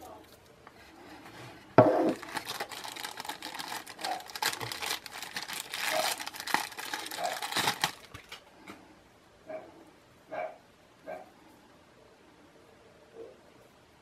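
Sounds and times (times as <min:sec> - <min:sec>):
plastic bag crinkling: 0:00.8 - 0:08.4.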